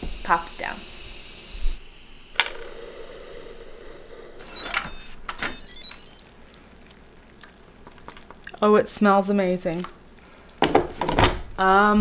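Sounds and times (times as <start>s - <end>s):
pressure cooker hissing: 0.0s - 5.2s.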